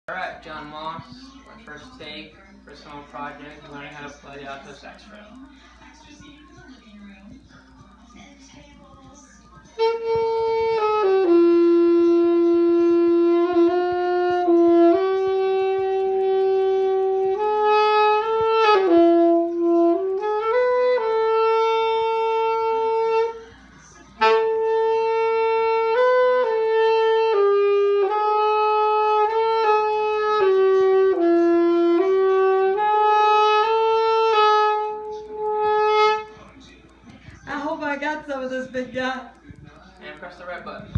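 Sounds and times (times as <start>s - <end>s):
alto saxophone long notes: 9.8s - 23.4s, 24.2s - 36.3s.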